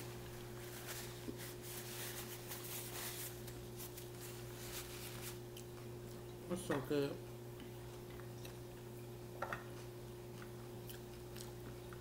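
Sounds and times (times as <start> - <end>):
paper napkin rustling: 0.0 - 5.4
low electrical hum: 0.0 - 12.0.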